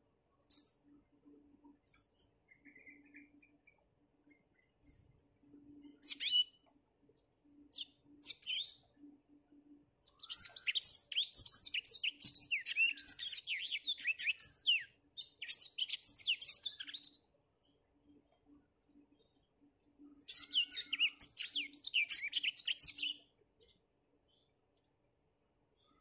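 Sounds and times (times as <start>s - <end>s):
canary chirping and singing: 6.0s - 6.4s, 7.7s - 8.8s, 10.1s - 17.1s, 20.3s - 23.2s.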